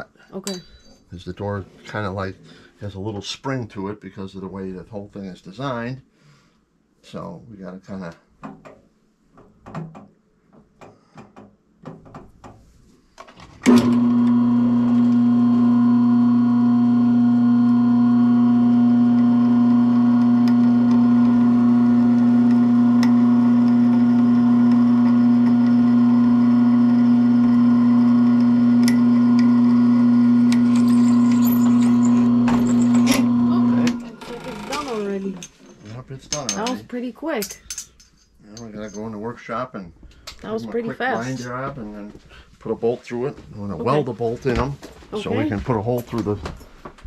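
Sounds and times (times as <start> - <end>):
drill press motor hum: 13.6 - 35.0
drill bit scraping metal: 14.0 - 35.2.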